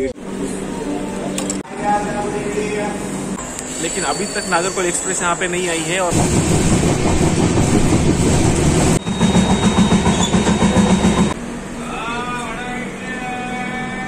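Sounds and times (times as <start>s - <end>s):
train wheels clattering on track: 6.1s - 11.4s.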